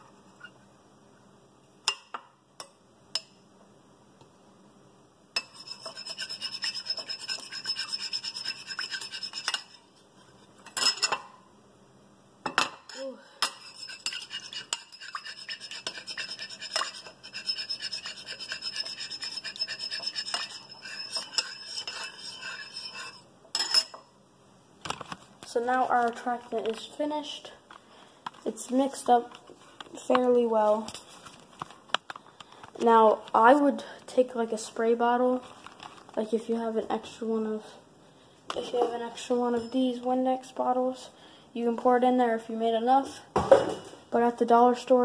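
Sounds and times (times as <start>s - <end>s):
spoon scraping ceramic bowl: 5.4s - 9.9s, 13.4s - 23.9s.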